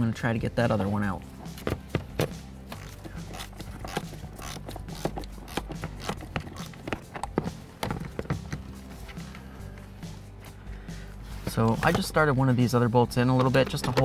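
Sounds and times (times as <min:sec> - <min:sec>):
hand ratchet clicking: 0:02.7 - 0:08.6.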